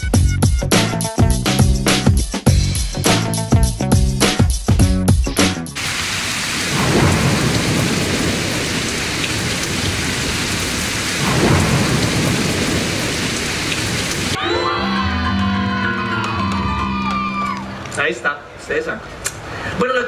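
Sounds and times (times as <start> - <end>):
heavy rain: 5.8 - 14.4
low rolls of thunder: 5.8 - 14.4.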